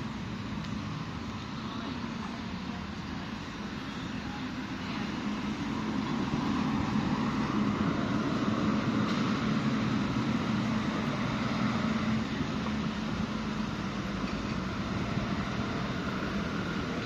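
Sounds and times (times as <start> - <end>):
low engine drone: 0.0 - 17.0
traffic noise: 0.0 - 17.0.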